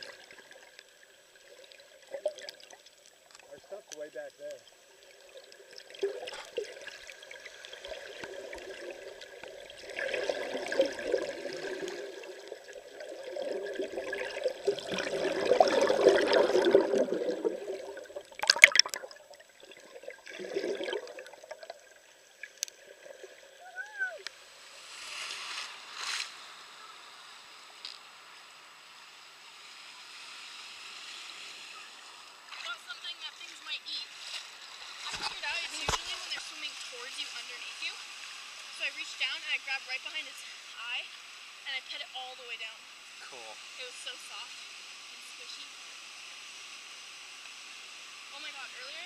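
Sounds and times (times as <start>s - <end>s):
water moving underwater: 0.0s - 24.3s.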